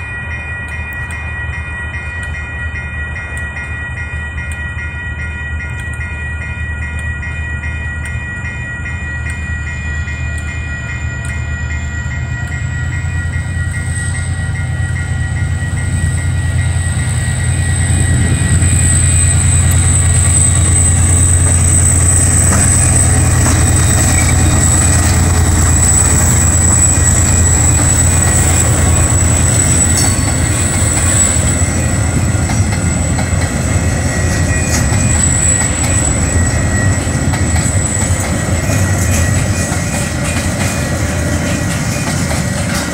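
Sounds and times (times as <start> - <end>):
crossing warning bell ringing: 0.0 - 42.9
train wheels squealing: 5.6 - 42.9
diesel locomotive rumble: 9.2 - 42.9.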